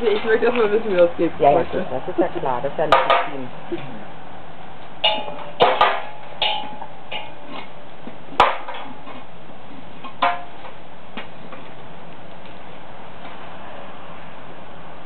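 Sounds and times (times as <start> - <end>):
metal clinks and knocks: 5.0 - 7.7.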